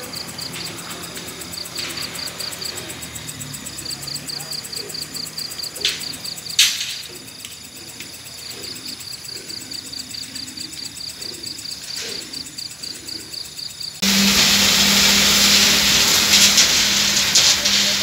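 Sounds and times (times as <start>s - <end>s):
loud machinery noise with hum: 0.0s - 7.2s, 14.0s - 18.0s
crickets chirping: 0.0s - 18.0s.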